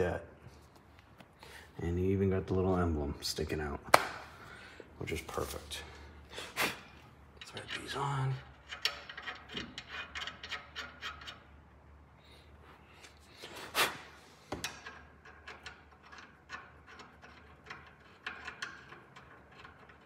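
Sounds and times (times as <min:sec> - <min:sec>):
small metal clicks and rattles: 0:14.6 - 0:20.0.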